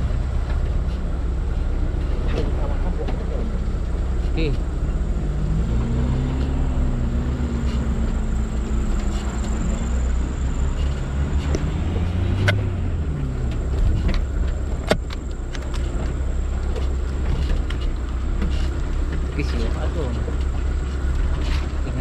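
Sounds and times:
vehicle engine rumbling: 0.0 - 22.0.

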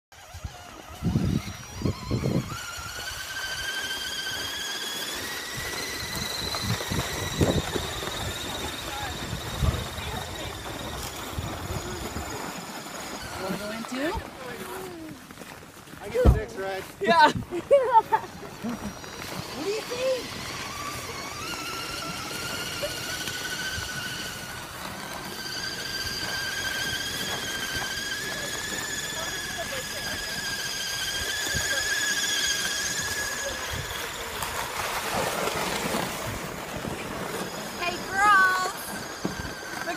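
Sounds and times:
electric motor whining: 0.2 - 15.4, 17.2 - 39.9.

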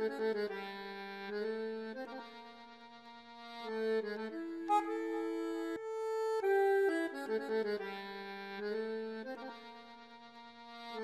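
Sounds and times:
accordion-like reed instrument melody: 0.0 - 11.0.

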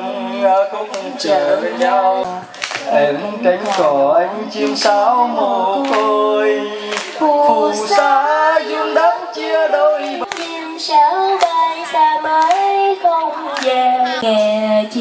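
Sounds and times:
woman singing with vibrato: 7.2 - 15.0.

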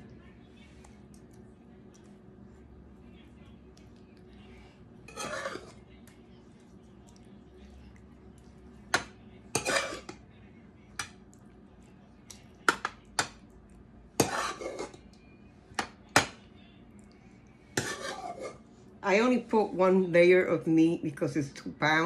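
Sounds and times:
metal spoon scraping pans: 5.1 - 5.8, 9.5 - 10.2, 14.2 - 15.0, 17.8 - 18.6.

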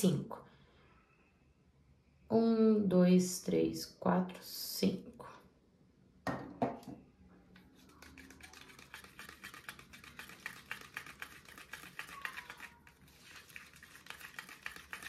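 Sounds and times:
spatula scraping paint in cup: 7.7 - 15.0.

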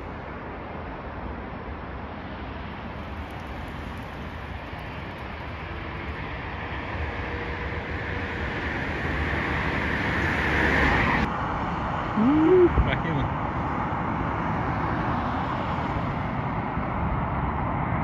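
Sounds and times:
jet engines roaring: 2.4 - 11.7.

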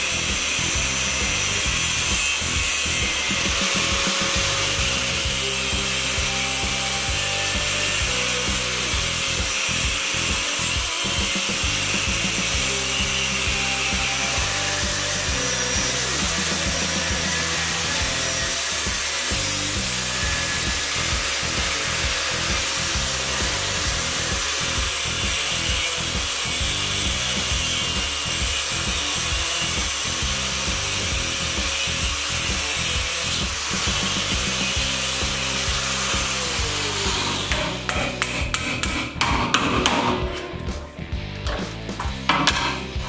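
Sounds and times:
angle grinder cutting steel: 0.0 - 43.0
steel rod clinking on metal: 37.2 - 40.8, 42.3 - 43.0.

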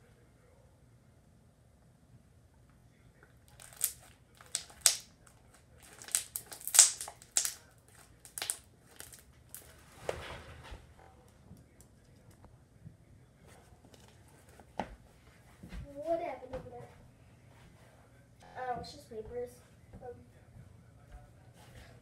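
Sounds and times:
slime crackling and squelching: 3.5 - 9.8.

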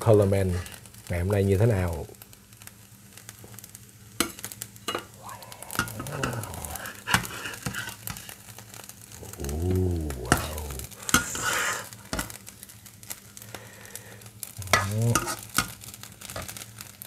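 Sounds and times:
rice sizzling: 0.0 - 17.0
metal spatula scraping pan: 7.1 - 8.2, 11.1 - 12.3, 14.7 - 15.6.

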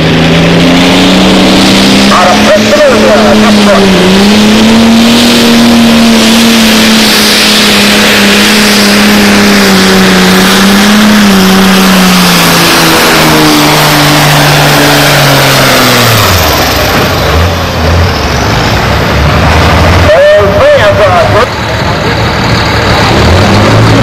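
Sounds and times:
diesel tractor engine roaring: 0.0 - 24.0.

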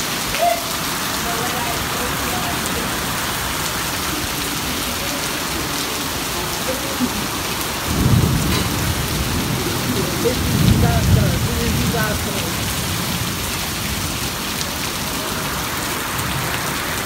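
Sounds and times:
heavy rain pouring: 0.0 - 17.0
deep thunder rumble: 7.4 - 14.3.

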